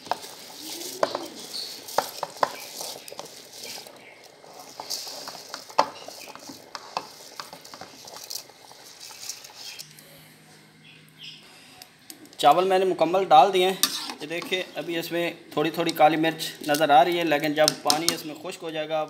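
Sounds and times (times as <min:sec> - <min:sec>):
rice pushed into pot: 0:00.0 - 0:09.8
boiling water hiss: 0:00.0 - 0:09.9, 0:11.6 - 0:19.0.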